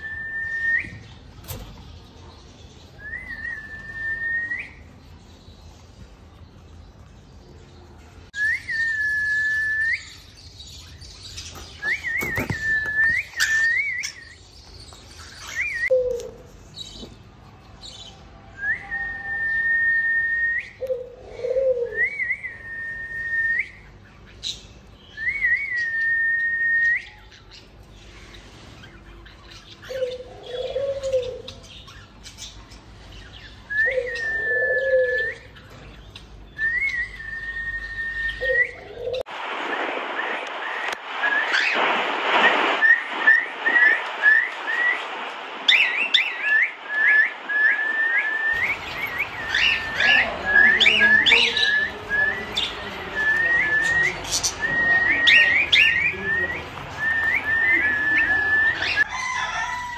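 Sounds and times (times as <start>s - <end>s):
cockatiels whistling: 11.8s - 14.4s, 45.7s - 59.1s
low warbling bird calls: 23.7s - 59.7s.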